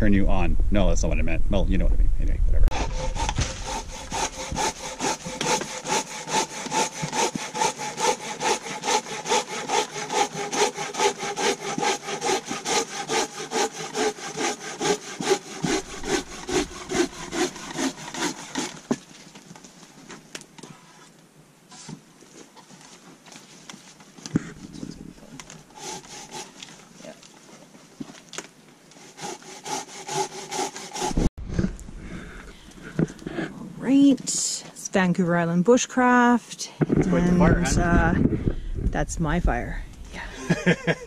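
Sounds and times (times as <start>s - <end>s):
hand saw cutting log: 2.7s - 19.1s, 25.7s - 27.2s, 28.9s - 31.3s.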